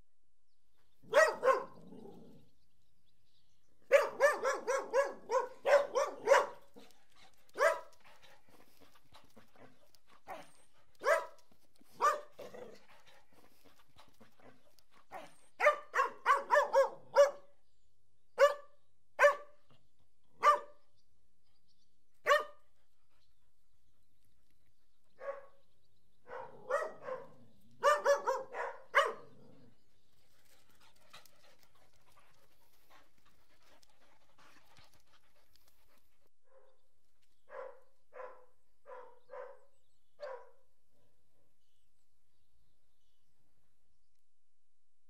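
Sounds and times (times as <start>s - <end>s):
dogs barking: 1.0s - 2.2s, 3.9s - 8.6s, 10.3s - 12.8s, 15.1s - 17.5s, 18.4s - 19.5s, 20.4s - 20.7s, 22.2s - 22.6s, 25.2s - 25.6s, 26.2s - 29.4s, 37.5s - 40.6s.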